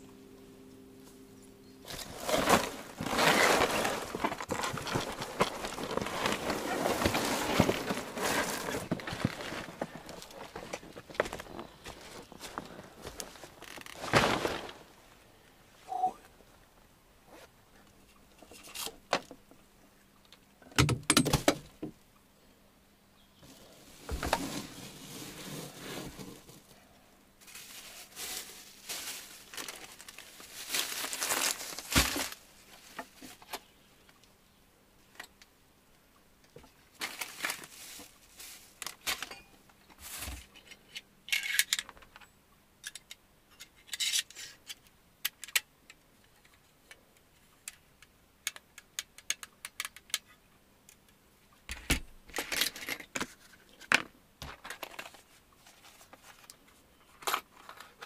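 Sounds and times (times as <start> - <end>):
rustling and crinkling: 1.8 - 19.6, 23.4 - 34.2, 36.5 - 42.2, 51.7 - 58.0.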